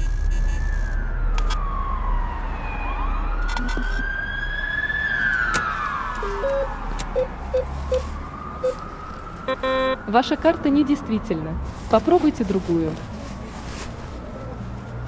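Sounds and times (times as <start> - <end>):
siren wailing: 0.5 - 10.8
keypad electronic beeps: 6.3 - 7.7, 9.5 - 10.0.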